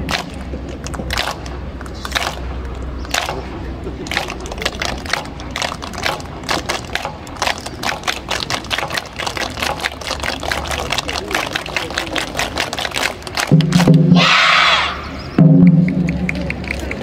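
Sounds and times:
children clapping: 0:00.0 - 0:03.4, 0:04.0 - 0:14.0, 0:15.7 - 0:17.0
children shouting in unison: 0:14.1 - 0:15.2.

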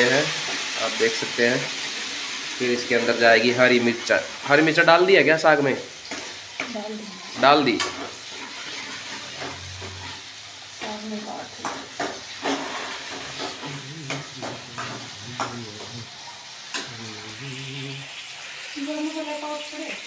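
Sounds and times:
vegetables sizzling in oil: 0:00.0 - 0:20.0.

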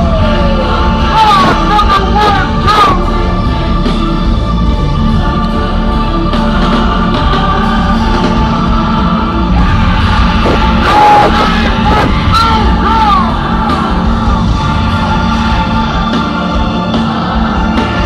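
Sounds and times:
bass line: 0:00.0 - 0:18.0
live concert music: 0:00.0 - 0:18.0
gliding vocals: 0:04.7 - 0:18.0.

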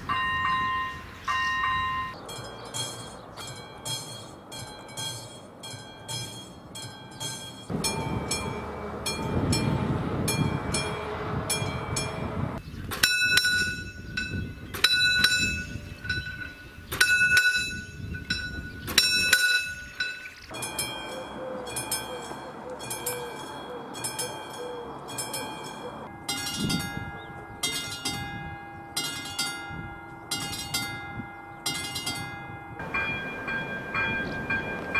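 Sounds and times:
passing train rumble: 0:00.0 - 0:13.1, 0:20.4 - 0:27.6, 0:31.0 - 0:34.9
level crossing bells ringing: 0:00.0 - 0:34.9.

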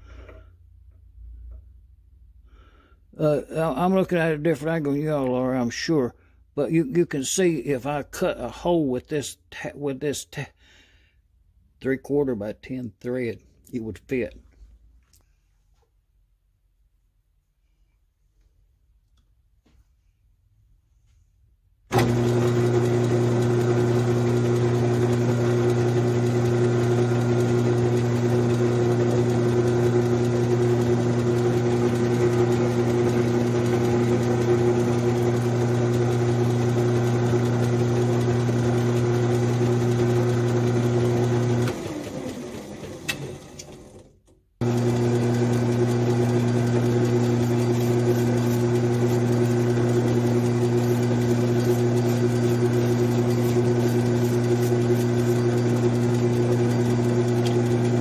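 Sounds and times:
metal lathe motor humming: 0:21.9 - 0:44.0, 0:44.6 - 0:58.0.

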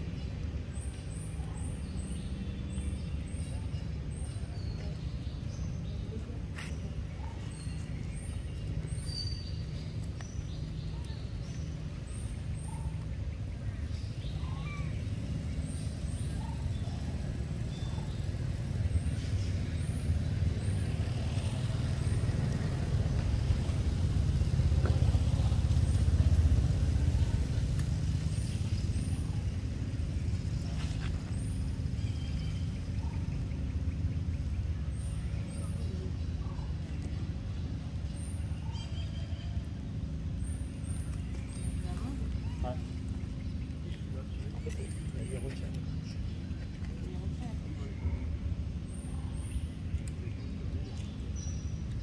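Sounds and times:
vehicle engine rumble: 0:00.0 - 0:52.0.

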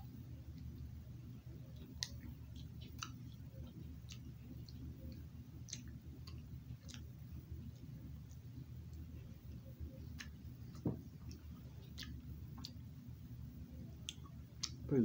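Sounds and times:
steady low hum: 0:00.0 - 0:15.0
lip smacks and mouth clicks: 0:01.7 - 0:13.0, 0:13.9 - 0:14.9.

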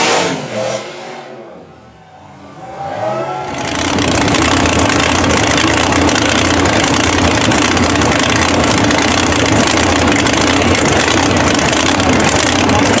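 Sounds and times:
truck engine idling loudly: 0:03.4 - 0:13.0.

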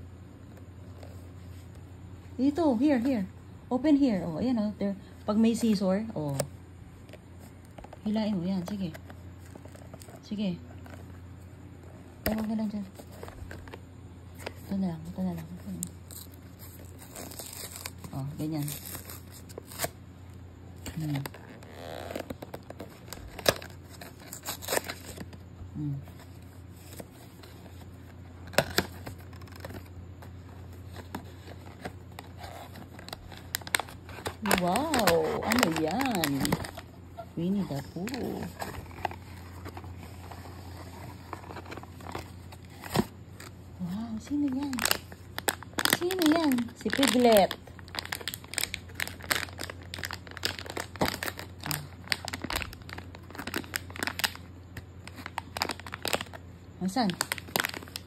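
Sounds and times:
foil wrapper crinkling: 0:07.0 - 0:11.3, 0:12.2 - 0:58.0.

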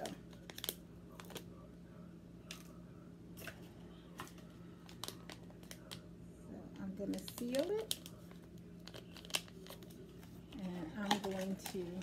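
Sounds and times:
faint steady hum: 0:00.0 - 0:12.0
plastic bag crinkling: 0:04.2 - 0:06.0, 0:07.1 - 0:12.0.

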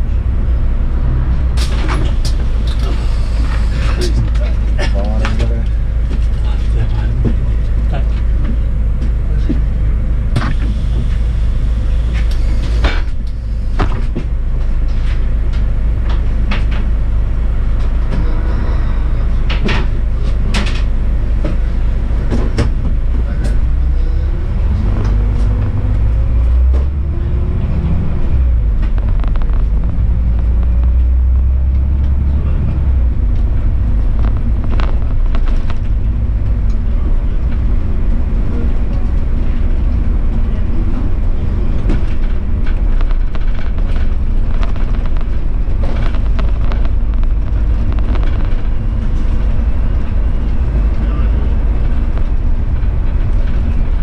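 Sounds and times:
bus engine and road rumble: 0:00.0 - 0:54.0.

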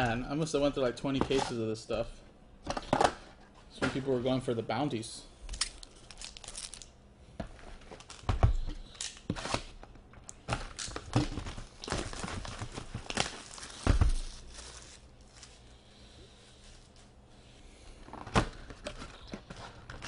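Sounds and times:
plastic shrink-wrap crinkling: 0:05.7 - 0:06.9, 0:10.8 - 0:15.7.

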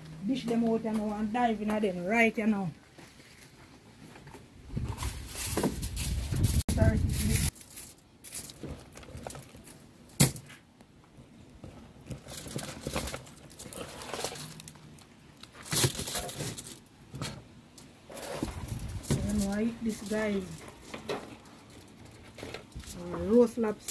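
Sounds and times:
aluminium foil crinkling: 0:05.0 - 0:10.2, 0:12.0 - 0:16.9, 0:18.1 - 0:23.9.

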